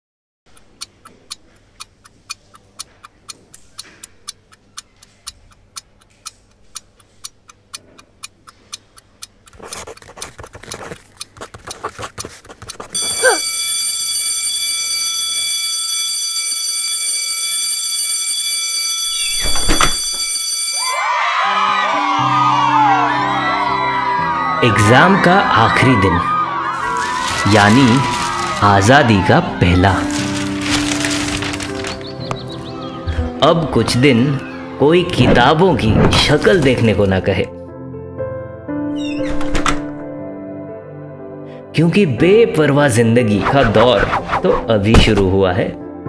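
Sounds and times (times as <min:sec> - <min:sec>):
clock ticking: 0:00.5 - 0:14.6, 0:27.0 - 0:29.1
long steady ringing tone: 0:13.0 - 0:21.0.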